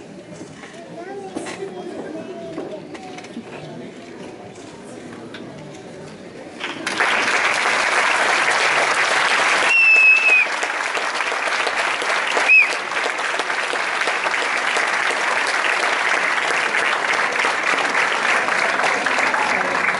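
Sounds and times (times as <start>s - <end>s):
audience applauding: 6.6s - 19.9s
short high whistles: 9.6s - 10.6s, 12.4s - 12.8s.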